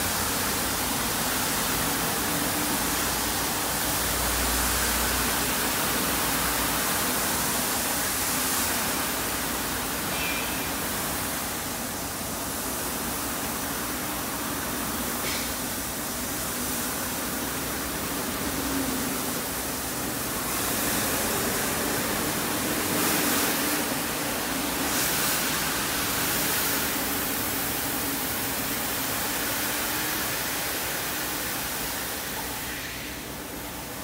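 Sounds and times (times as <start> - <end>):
carpet washing machine running: 16.2 - 32.7.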